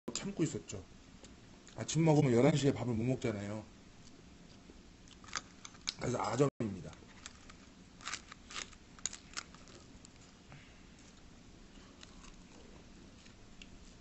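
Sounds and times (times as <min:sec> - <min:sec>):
faint chewing: 0:07.0 - 0:14.0.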